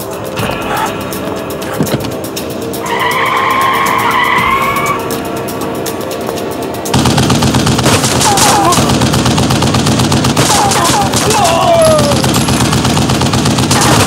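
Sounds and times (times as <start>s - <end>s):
dramatic music: 0.0s - 14.0s
car tyres squealing: 2.8s - 5.2s
machine-gun fire: 6.9s - 14.0s.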